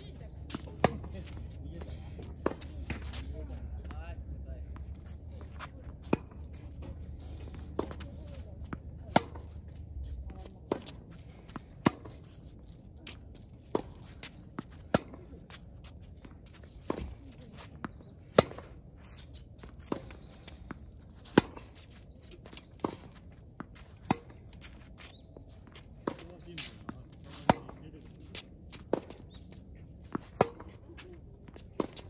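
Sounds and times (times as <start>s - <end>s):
tennis balls bouncing on court: 0.0s - 32.0s
racquets striking tennis balls: 22.6s - 27.8s, 28.4s - 32.0s.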